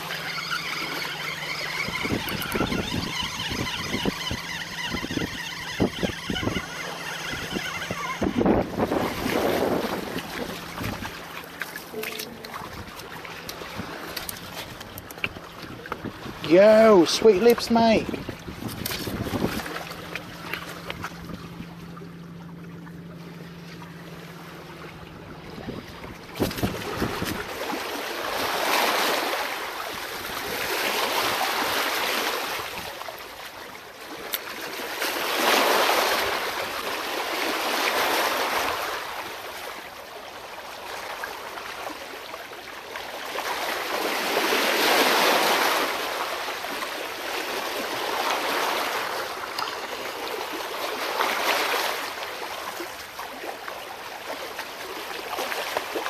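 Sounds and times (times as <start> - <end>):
waves washing against rocks: 0.0 - 21.1, 25.6 - 33.1, 42.9 - 56.0
low hum: 17.0 - 28.0.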